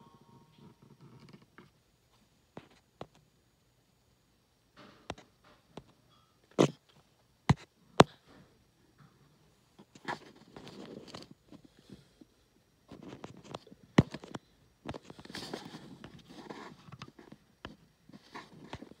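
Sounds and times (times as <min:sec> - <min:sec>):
rustling and scraping: 0:09.8 - 0:12.3, 0:12.9 - 0:19.0.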